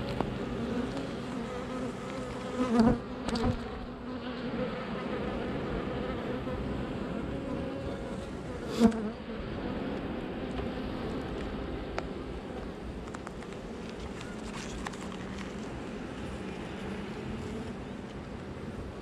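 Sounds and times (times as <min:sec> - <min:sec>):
bees buzzing: 0:00.0 - 0:12.8.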